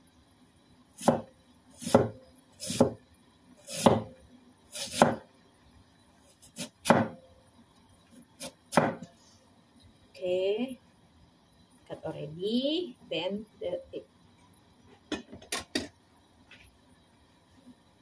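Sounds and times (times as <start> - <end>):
cleaver chopping potato: 1.0 - 1.2, 1.8 - 3.0, 3.7 - 4.1, 4.8 - 5.2, 6.6 - 7.2, 8.4 - 9.0.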